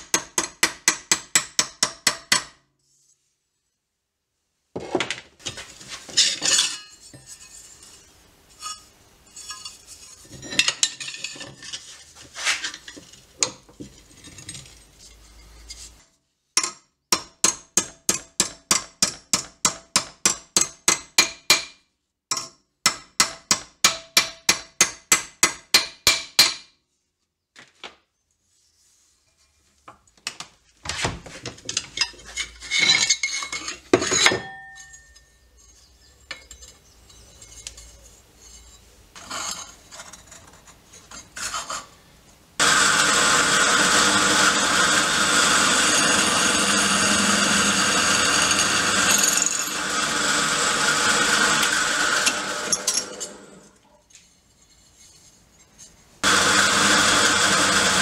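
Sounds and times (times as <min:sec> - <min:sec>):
steel and vise clanking: 0:05.4 - 0:07.9, 0:08.6 - 0:14.7, 0:31.4 - 0:41.9, 0:50.7 - 0:56.0.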